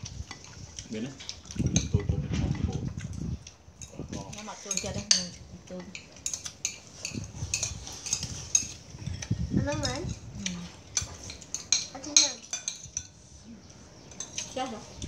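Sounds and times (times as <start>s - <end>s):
spoons clinking on plates: 3.8s - 10.2s, 10.8s - 13.3s, 14.0s - 15.0s.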